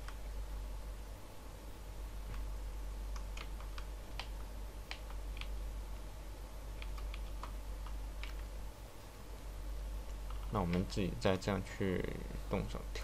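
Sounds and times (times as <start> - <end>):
low steady hum: 0.0 - 13.0
keyboard and mouse clicking: 3.1 - 5.6, 6.7 - 8.5, 10.0 - 11.4.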